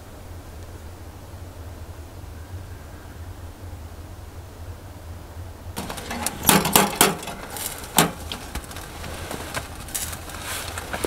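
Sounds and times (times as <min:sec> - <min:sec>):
fire crackling: 0:05.1 - 0:11.0
knocks and clicks on metal stove: 0:05.8 - 0:08.7.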